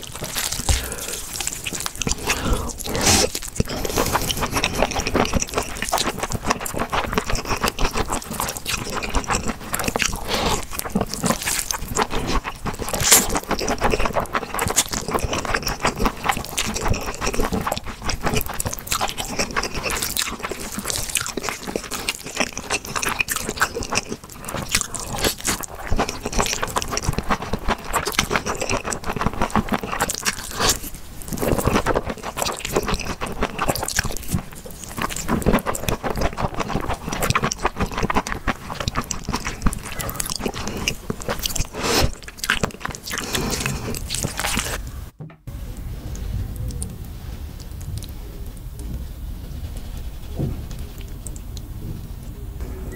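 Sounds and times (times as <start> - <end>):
woman slurping noodles: 0.6 - 5.0.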